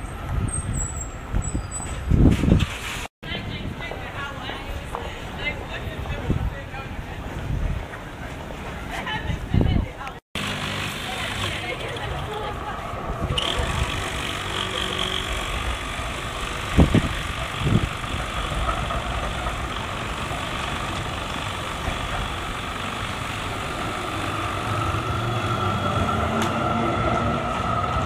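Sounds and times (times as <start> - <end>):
street traffic: 0.0 - 28.0
electric trams running: 10.4 - 28.0.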